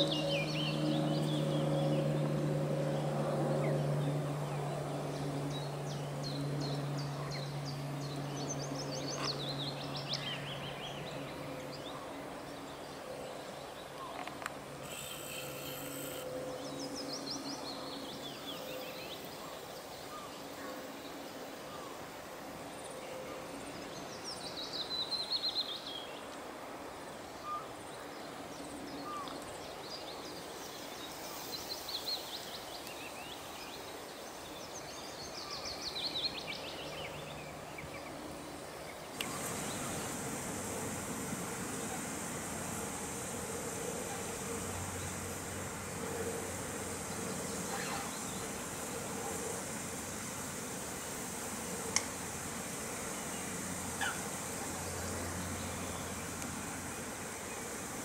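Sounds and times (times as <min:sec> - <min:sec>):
low steady hum: 0:00.0 - 0:18.5
songbirds singing: 0:00.0 - 0:22.0, 0:22.6 - 0:58.0
outdoor background noise: 0:00.0 - 0:58.0.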